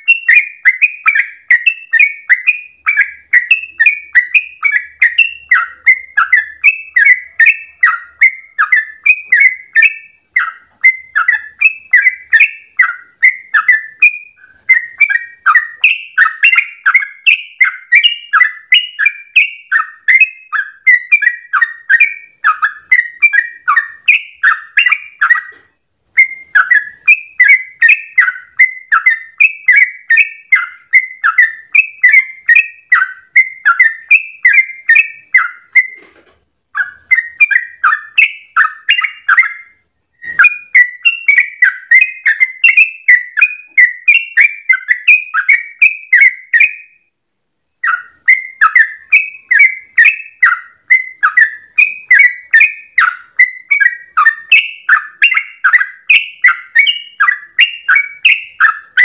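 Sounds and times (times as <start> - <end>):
bulbul singing: 0.0 - 47.1, 47.8 - 59.0.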